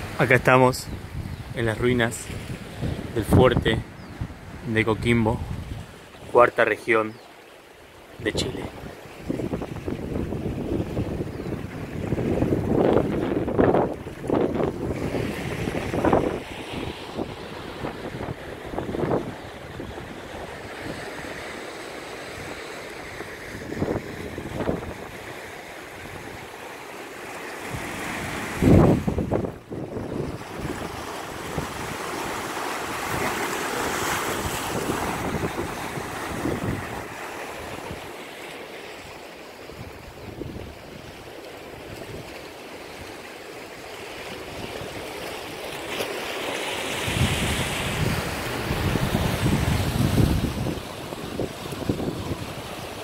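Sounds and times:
ocean surf over rocks: 0.0s - 53.0s
wind on microphone: 0.8s - 6.0s, 8.2s - 21.3s, 22.4s - 25.3s, 27.6s - 32.0s, 34.0s - 38.1s, 39.7s - 41.1s, 46.9s - 53.0s.

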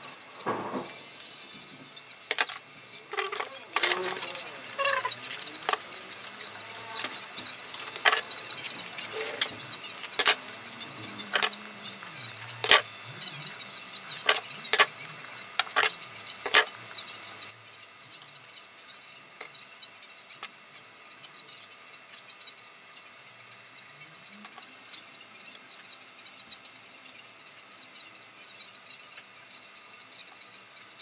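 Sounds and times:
small objects clicking on workbench: 2.2s - 12.9s, 14.1s - 17.0s.

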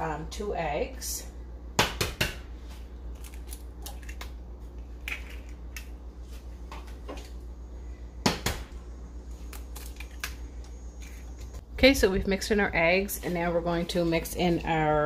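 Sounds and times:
low steady hum: 0.0s - 15.0s
eggs cracked on metal bowl: 5.0s - 6.0s.

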